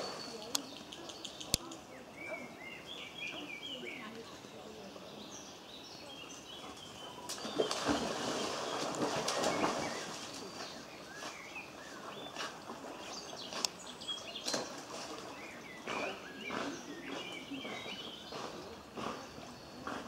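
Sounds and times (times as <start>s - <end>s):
small birds chirping: 0.0s - 20.0s
dog splashing in water: 7.1s - 10.9s.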